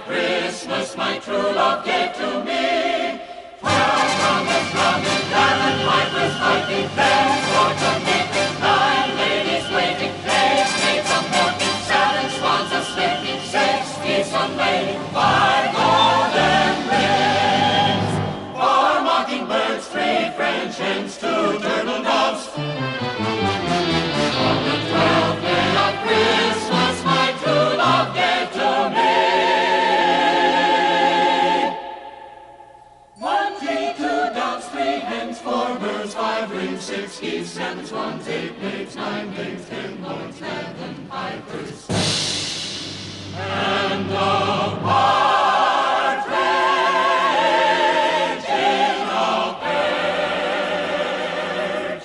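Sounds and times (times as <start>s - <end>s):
choir singing with accompaniment: 0.0s - 52.0s.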